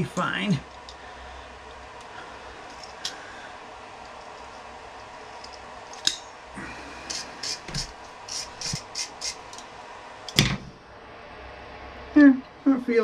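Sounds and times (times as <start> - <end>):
wire brush scrubbing metal: 6.9 - 9.6.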